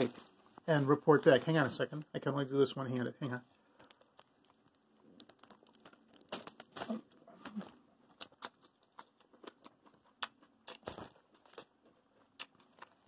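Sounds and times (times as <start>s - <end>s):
paper wrapper crinkling: 3.0s - 9.0s.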